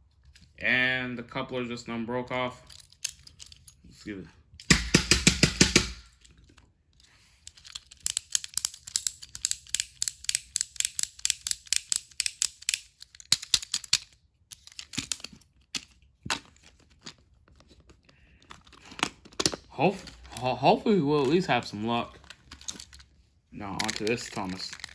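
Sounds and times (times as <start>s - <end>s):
toy train clicking and rattling: 7.3s - 15.9s, 21.3s - 24.9s.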